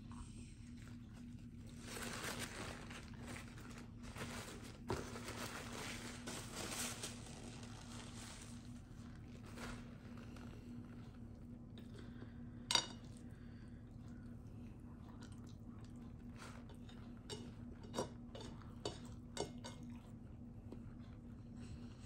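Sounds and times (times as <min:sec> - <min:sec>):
rustling and crunching food packaging: 0:00.6 - 0:12.2.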